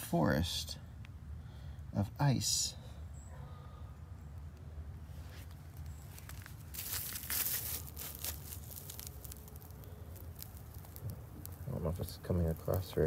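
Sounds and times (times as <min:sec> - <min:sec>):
ice crunching and crackling: 0:05.2 - 0:13.0.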